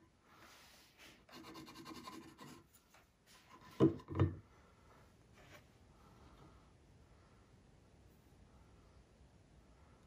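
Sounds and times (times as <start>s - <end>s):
pencil scribbling on wood: 1.2s - 2.7s.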